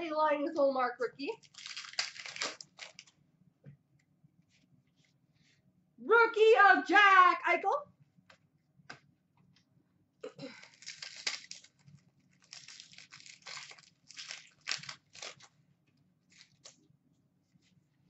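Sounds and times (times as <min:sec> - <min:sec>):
foil wrapper tearing and crinkling: 0:01.4 - 0:03.1, 0:10.5 - 0:15.6, 0:16.3 - 0:16.8.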